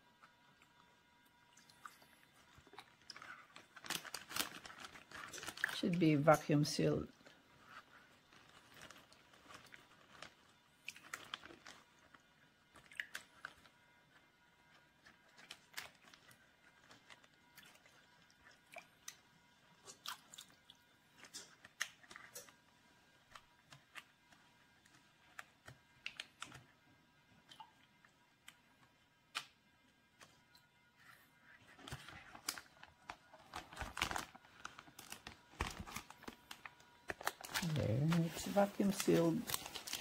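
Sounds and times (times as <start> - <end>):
plastic zipper bag crackling: 2.5 - 12.3, 31.7 - 40.0.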